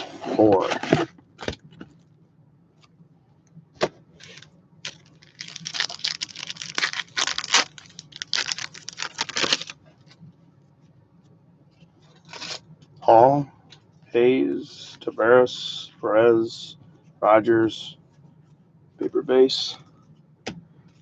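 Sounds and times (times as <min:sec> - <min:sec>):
plastic wrapping tearing: 0:04.2 - 0:09.8.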